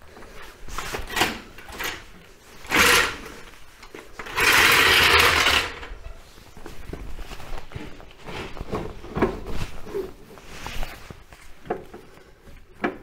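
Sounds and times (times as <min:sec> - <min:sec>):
metal scraping and knocking: 0:04.2 - 0:06.0.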